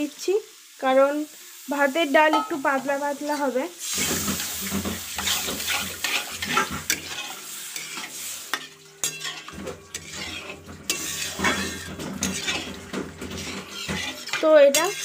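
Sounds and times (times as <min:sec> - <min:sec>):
pan sizzling: 0:00.0 - 0:15.0
ladle scraping metal pan: 0:03.3 - 0:15.0.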